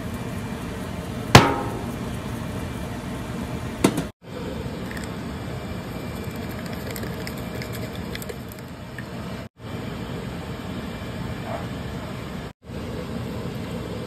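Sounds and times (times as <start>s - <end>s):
low rumbling kitchen noise: 0.0s - 14.0s
sauce being stirred in pan: 5.9s - 8.6s.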